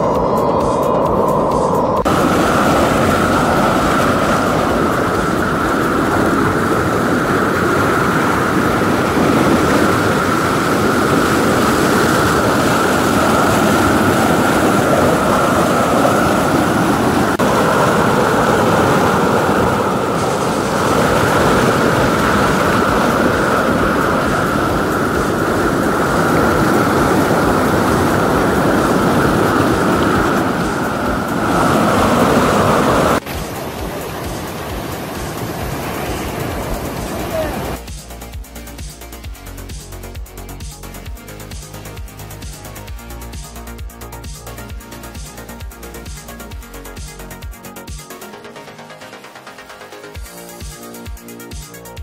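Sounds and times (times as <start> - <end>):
stream water rushing over boulders: 0.0 - 39.0.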